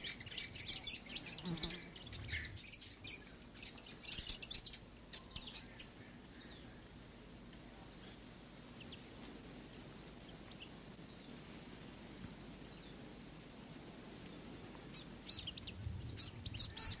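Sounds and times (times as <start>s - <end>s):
birds chirping: 0.0s - 7.1s, 14.3s - 17.0s.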